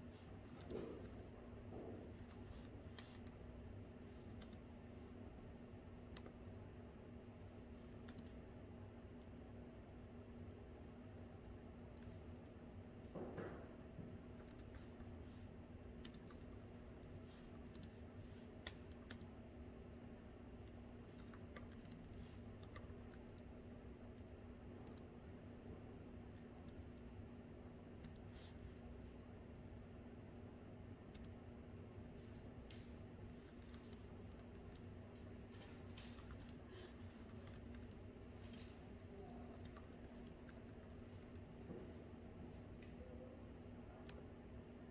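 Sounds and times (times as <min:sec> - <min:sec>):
low room tone hum: 0:00.0 - 0:44.9
laptop keyboard typing: 0:04.1 - 0:04.7, 0:07.9 - 0:08.4, 0:14.2 - 0:15.2, 0:15.9 - 0:19.4, 0:20.5 - 0:25.2, 0:31.0 - 0:31.5, 0:32.2 - 0:41.5.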